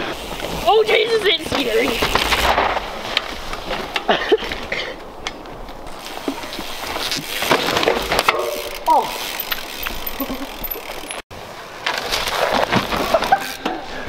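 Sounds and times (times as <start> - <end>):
bike rattling over dirt trail: 0.0 - 14.0
bike clicks and knocks: 0.3 - 11.2, 11.8 - 14.0
person calling out: 8.8 - 9.2.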